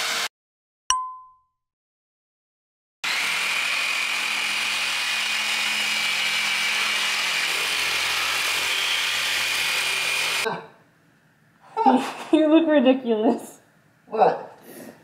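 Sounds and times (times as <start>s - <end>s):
reciprocating saw cutting wood: 3.0s - 10.5s.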